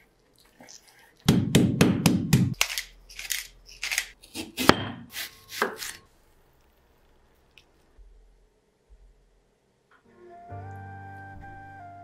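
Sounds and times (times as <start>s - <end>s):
meat mallet pounding: 1.3s - 2.6s.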